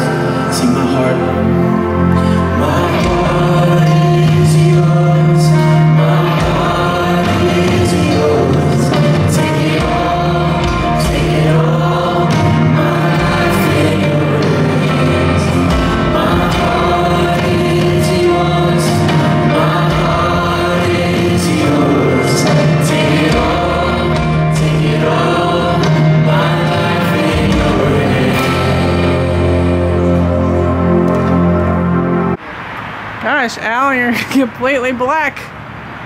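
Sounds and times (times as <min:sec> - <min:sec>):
singers in harmony: 0:00.0 - 0:33.4
electric and acoustic guitars: 0:00.0 - 0:35.5.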